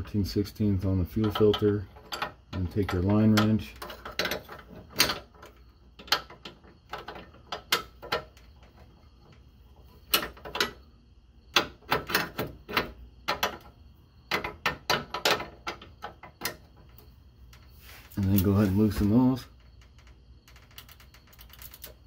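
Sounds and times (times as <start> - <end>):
metal tools clicking and clinking: 1.1 - 8.2.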